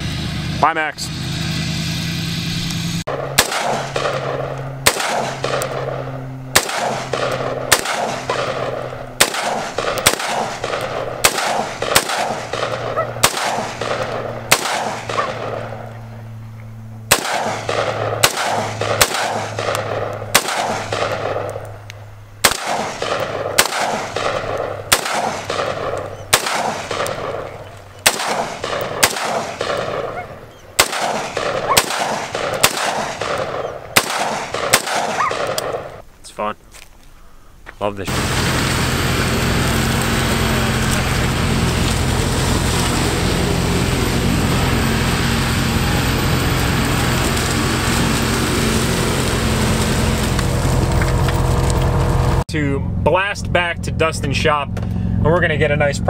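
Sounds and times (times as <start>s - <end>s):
rifle shots: 3.1s - 15.8s, 17.1s - 21.8s, 22.4s - 36.0s.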